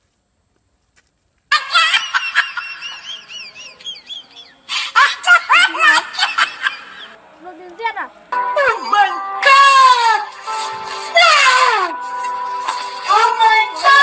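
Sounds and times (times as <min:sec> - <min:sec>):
cartoon giggling: 0:01.5 - 0:07.2
music: 0:08.2 - 0:14.0.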